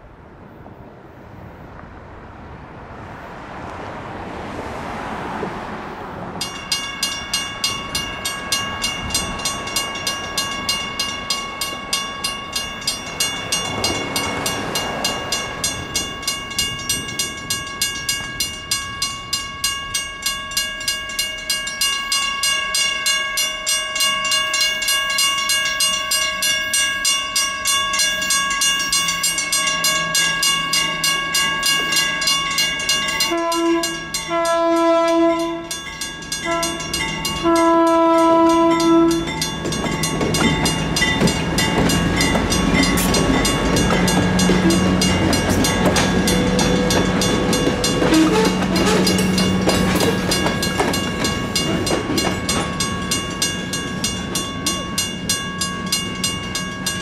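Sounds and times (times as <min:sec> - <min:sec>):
vehicle passing: 0:00.8 - 0:09.2, 0:38.2 - 0:52.2
crossing signal bell ringing: 0:06.4 - 0:57.0.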